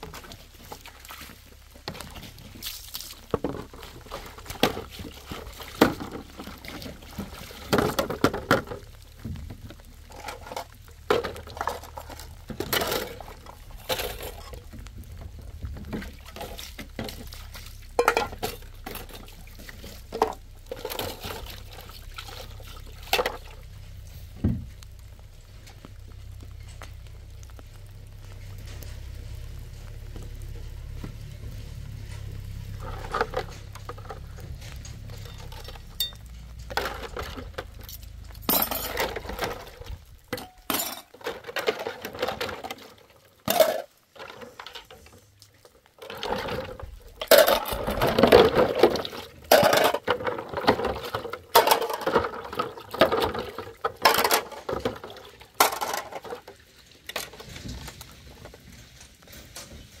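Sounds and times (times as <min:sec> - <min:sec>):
dishes clinking and clattering: 0:17.9 - 0:19.4, 0:32.1 - 0:39.7, 0:40.3 - 0:42.6.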